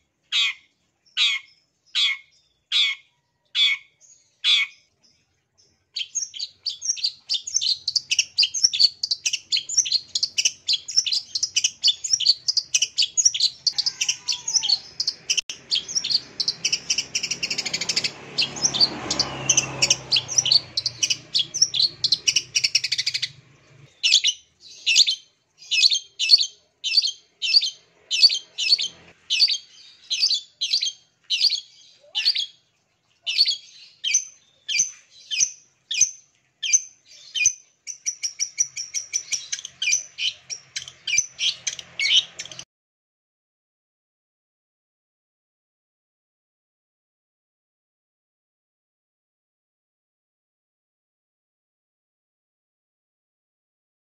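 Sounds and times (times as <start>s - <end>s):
harsh bird calls: 0.0s - 4.9s, 5.9s - 42.6s.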